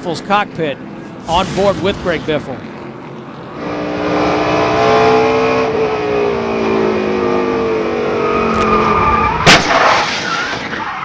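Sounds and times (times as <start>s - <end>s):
tire squeal: 6.1s - 11.0s.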